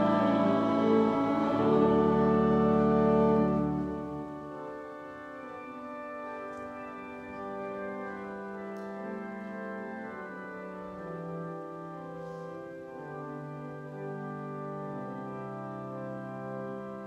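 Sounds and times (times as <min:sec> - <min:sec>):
church organ chords: 0:00.0 - 0:17.0.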